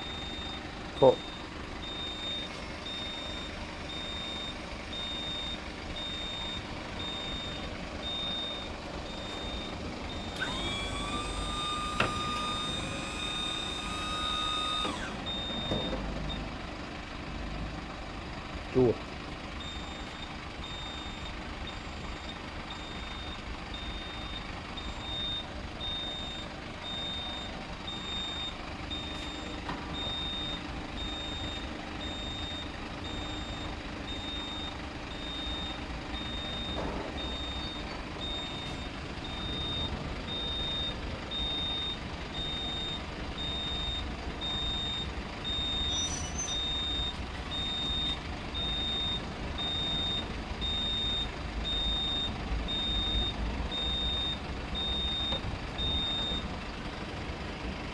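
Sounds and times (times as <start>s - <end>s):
high-pitched warning beeps: 0.0s - 16.5s, 19.6s - 56.5s.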